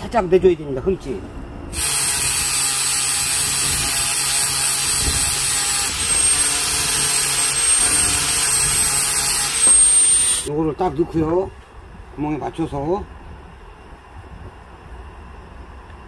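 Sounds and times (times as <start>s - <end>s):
angle grinder grinding steel: 1.7s - 10.5s.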